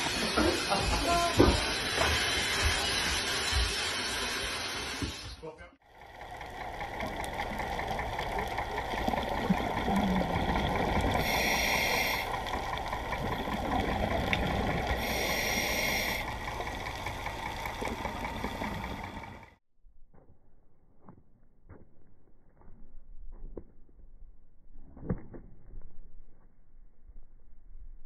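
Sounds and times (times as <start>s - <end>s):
underwater water noise and bubbling: 6.0s - 19.6s
diver breathing through regulator: 9.0s - 19.3s.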